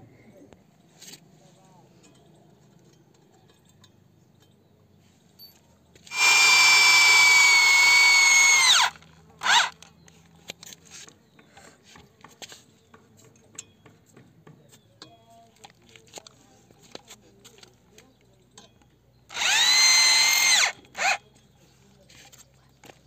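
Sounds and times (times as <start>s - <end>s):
electric hammer drill whining: 6.1s - 9.8s, 19.3s - 21.2s.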